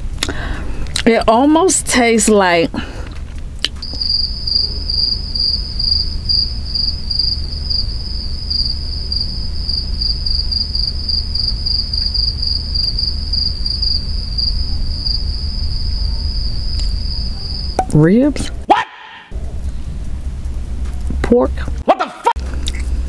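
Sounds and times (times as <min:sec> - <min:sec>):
low rumble: 0:02.4 - 0:18.7, 0:19.3 - 0:21.8
cricket trilling: 0:03.7 - 0:18.2.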